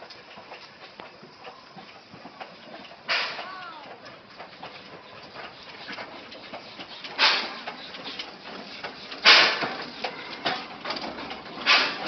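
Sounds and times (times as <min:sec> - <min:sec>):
steam locomotive hissing: 0:00.0 - 0:12.0.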